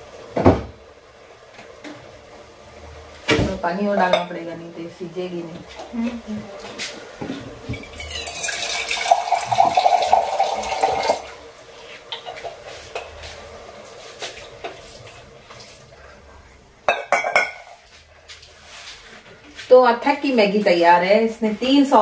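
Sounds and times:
water hissing in hot wok: 7.8s - 16.0s.

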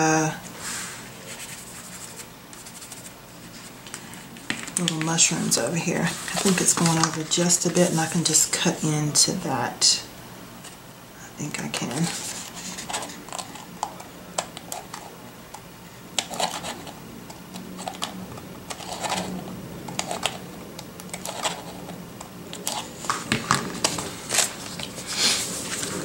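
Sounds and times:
paper rustling: 1.2s - 8.8s, 11.8s - 15.2s, 21.1s - 26.0s.

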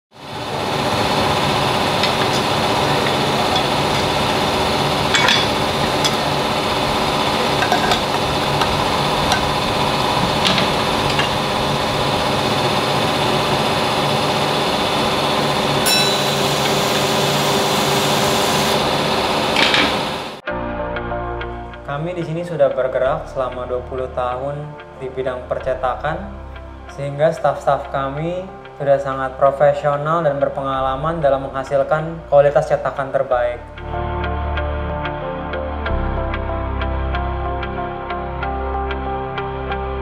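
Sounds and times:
printing press humming: 0.2s - 20.4s
sharp clicks and knocks: 7.5s - 11.5s.

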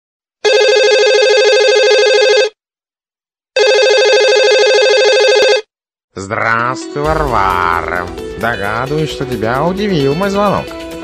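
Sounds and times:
telephone ringing: 0.4s - 2.6s, 3.6s - 5.7s.

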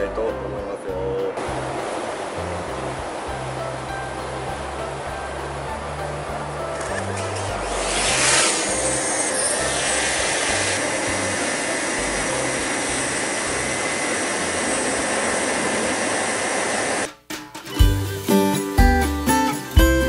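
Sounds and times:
drone propellers whining: 6.6s - 17.1s.

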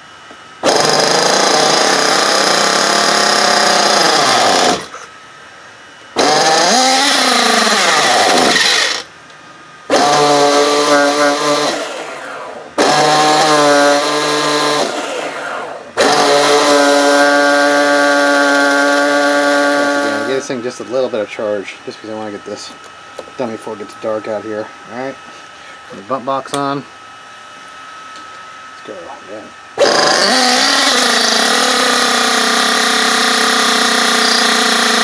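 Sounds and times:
electric starter spinning engine: 0.6s - 5.0s, 6.1s - 9.2s, 9.9s - 20.8s, 29.8s - 35.0s.

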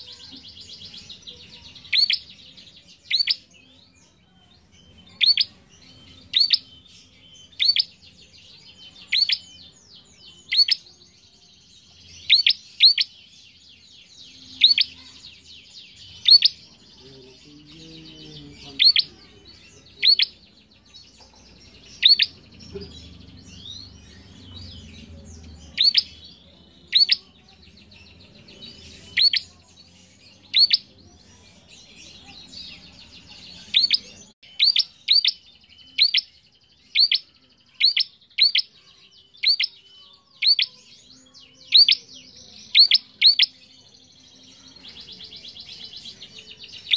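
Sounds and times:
faint high bird chatter: 0.0s - 46.9s
bird sharp chip calls: 7.6s - 7.9s.

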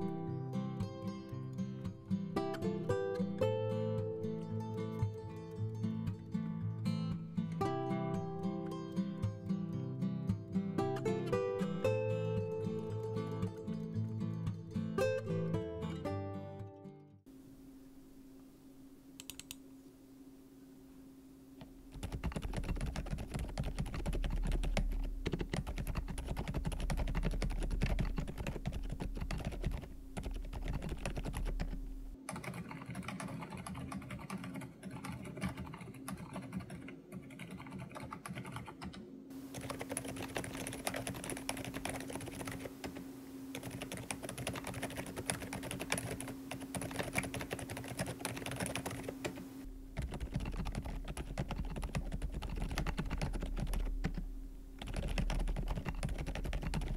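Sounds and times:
mechanical keyboard typing: 19.2s - 19.6s, 21.9s - 54.2s, 54.8s - 56.9s.

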